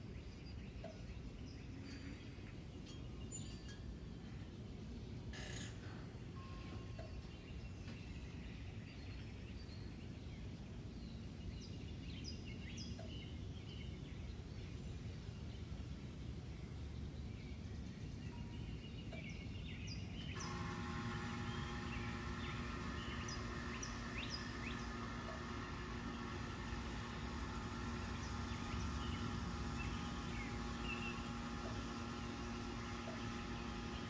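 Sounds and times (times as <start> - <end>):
low outdoor rumble: 0.0 - 34.0
steady multi-pitch hum: 13.3 - 34.0
birds chirping: 16.7 - 34.0.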